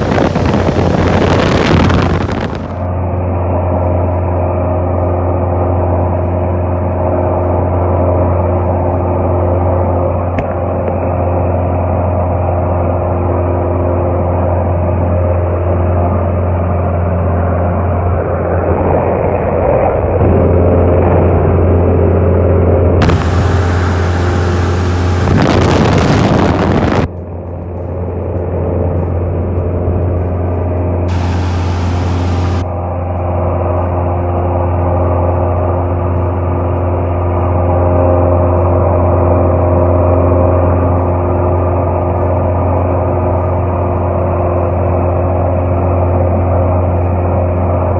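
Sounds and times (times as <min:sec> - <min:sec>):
loud rushing noise: 0:00.0 - 0:02.8, 0:23.0 - 0:27.1, 0:31.1 - 0:32.7
plane engine and propeller drone: 0:00.0 - 0:47.9.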